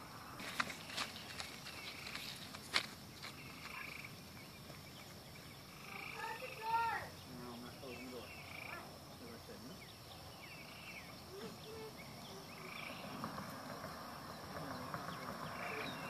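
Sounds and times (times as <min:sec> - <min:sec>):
animal chirps and calls: 0:05.0 - 0:16.0
high-pitched insect drone: 0:05.2 - 0:16.0.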